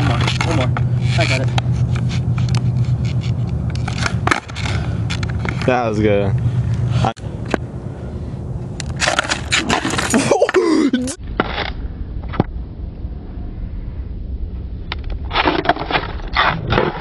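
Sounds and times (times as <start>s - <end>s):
skateboard deck scraping: 0.0s - 5.8s, 8.8s - 10.6s, 11.2s - 12.5s
low rolling rumble: 0.0s - 10.1s, 11.2s - 17.0s
skateboard clacking on pavement: 3.7s - 5.8s.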